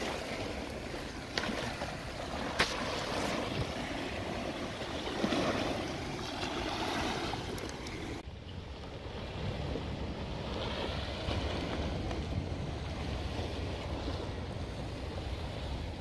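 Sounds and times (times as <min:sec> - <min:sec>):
waves splashing against rocks: 0:00.0 - 0:08.2.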